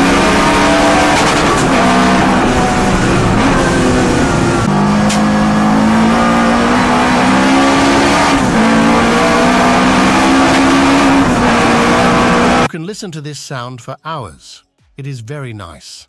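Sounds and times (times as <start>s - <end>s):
car engine accelerating hard: 0.0s - 12.7s.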